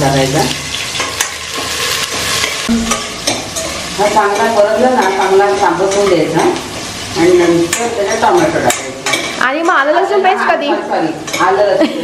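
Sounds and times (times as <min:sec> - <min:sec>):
onion sizzling in hot oil: 0:00.0 - 0:12.0
spoon stirring and clicking on pot: 0:07.4 - 0:09.4.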